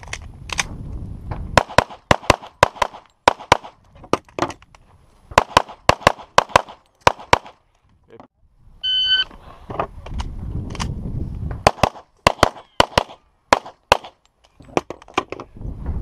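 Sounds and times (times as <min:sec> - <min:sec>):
handgun shots in quick pairs: 0:01.6 - 0:03.8, 0:05.4 - 0:07.6, 0:11.6 - 0:14.2.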